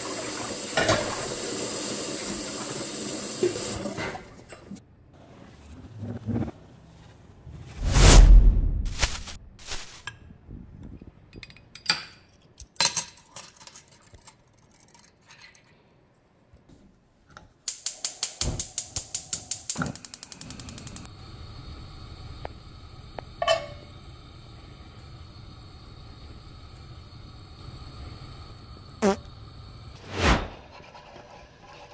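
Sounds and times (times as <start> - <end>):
gas stove igniter clicking: 17.7 - 21.2
gas burner hiss: 17.7 - 30.6.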